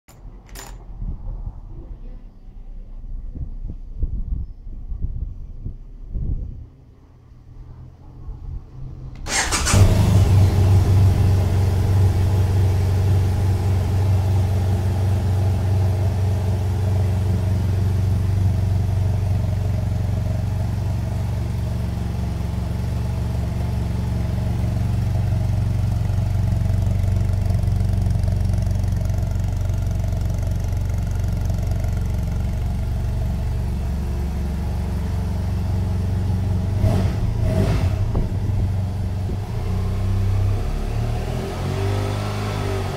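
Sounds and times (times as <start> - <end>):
motorcycle engine starting and idling: 0.1 - 1.2, 8.8 - 42.9.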